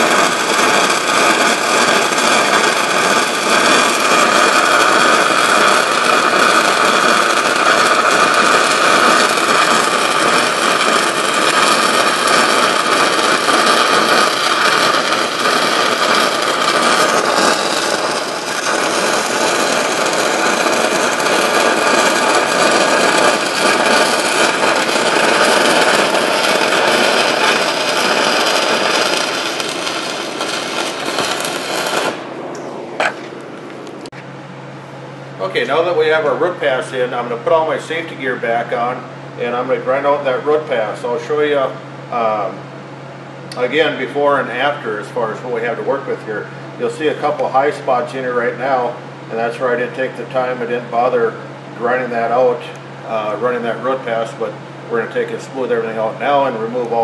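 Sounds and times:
welding arc hiss and crackle: 0.0s - 34.3s, 35.4s - 42.7s, 43.4s - 57.0s.

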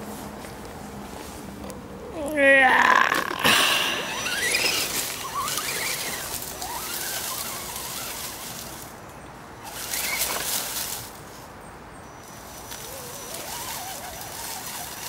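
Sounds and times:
tyres crunching over dry leaves: 0.0s - 15.0s
electric motor whining: 2.2s - 8.9s, 9.6s - 11.0s, 12.4s - 15.0s.

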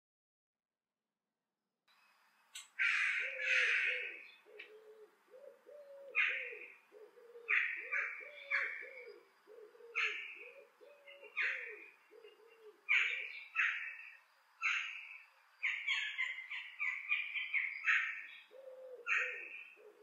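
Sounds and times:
crows cawing: 2.7s - 15.0s, 15.6s - 20.0s
repeated low coos: 3.0s - 13.3s.

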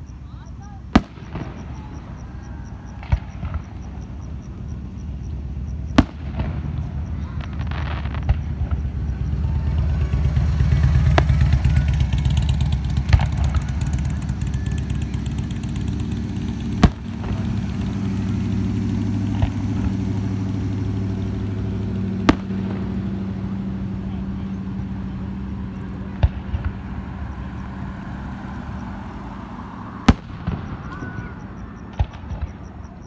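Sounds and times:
engine idling: 8.3s - 33.0s
firework shells bursting: 10.1s - 24.0s.

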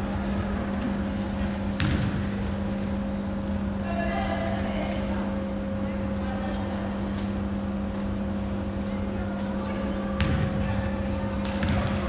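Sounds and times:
low hum and rumble: 0.0s - 12.0s.

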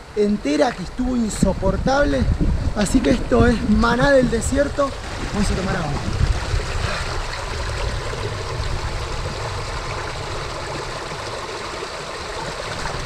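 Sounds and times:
stream running over rock: 0.0s - 13.0s.

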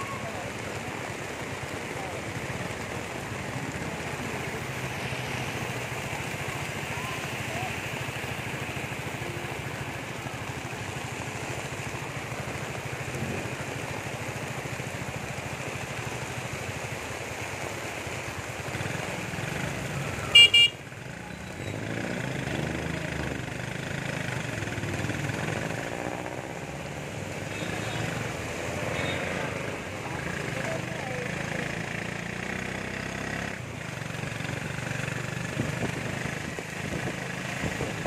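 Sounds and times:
heavy rain hissing: 0.0s - 20.3s
motorcycle engine running: 21.7s - 28.1s.

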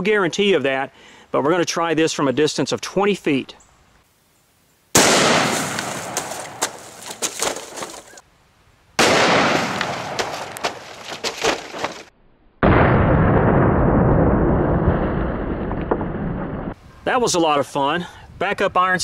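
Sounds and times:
sharp cracks: 4.9s - 8.2s, 9.0s - 16.8s
rifle gunshot: 5.0s - 6.9s, 9.0s - 10.8s.

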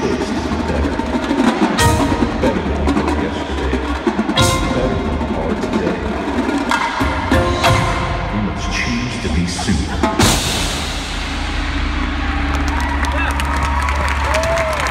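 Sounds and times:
marimbas: 0.0s - 11.0s
marching snare and tenor drums: 0.0s - 11.2s
drum kit: 0.0s - 13.8s.

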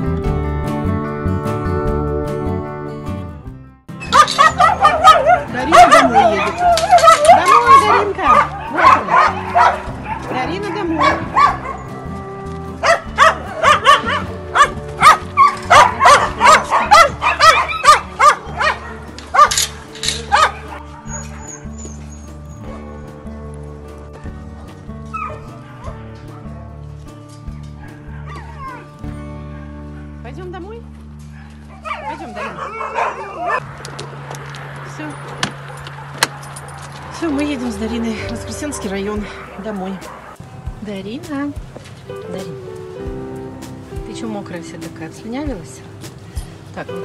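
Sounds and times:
background music: 0.0s - 47.0s
dogs barking: 4.0s - 12.2s, 12.8s - 23.2s, 25.0s - 26.7s, 27.6s - 30.2s, 31.2s - 33.7s, 38.4s - 40.4s.

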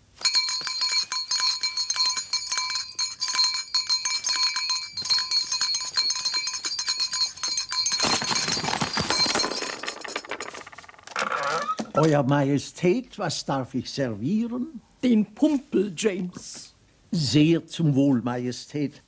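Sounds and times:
bell jangling rapidly: 0.1s - 10.8s.

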